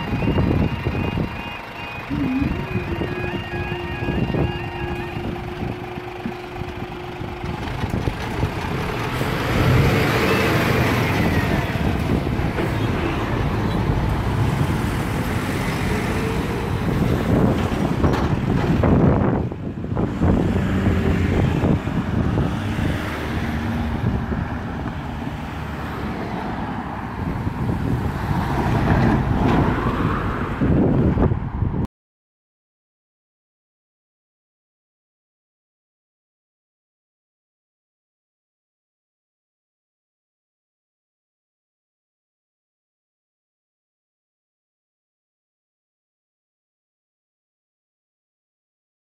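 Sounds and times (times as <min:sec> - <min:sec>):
engine and tyre noise: 0:00.0 - 0:31.9
road traffic passing: 0:00.0 - 0:31.9.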